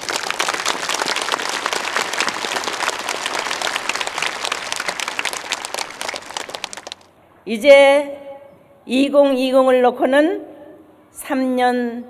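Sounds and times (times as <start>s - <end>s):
crowd applauding: 0.0s - 7.1s.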